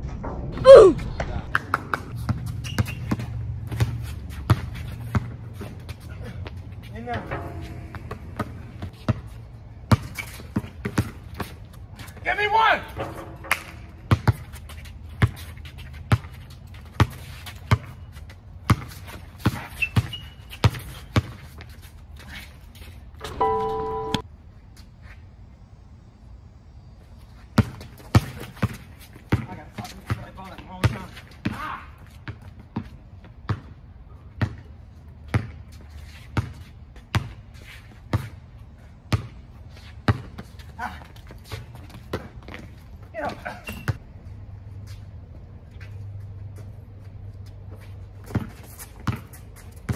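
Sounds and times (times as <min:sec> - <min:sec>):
basketball bouncing on hard court: 0:01.7 - 0:05.8, 0:07.1 - 0:11.5, 0:13.0 - 0:15.4, 0:18.6 - 0:21.4, 0:27.6 - 0:32.9, 0:33.5 - 0:33.7, 0:34.4 - 0:34.7, 0:35.3 - 0:35.7, 0:36.4 - 0:37.4, 0:39.1 - 0:39.4, 0:40.1 - 0:40.5, 0:48.2 - 0:49.9.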